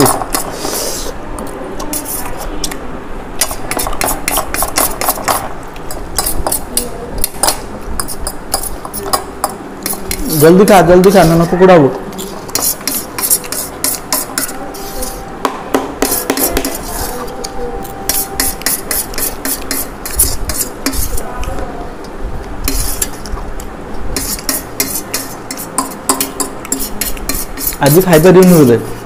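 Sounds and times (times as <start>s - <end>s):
fork scraping on steel plate: 1.8s - 2.5s, 11.0s - 15.3s, 16.0s - 21.2s, 22.6s - 23.3s, 24.2s - 28.0s.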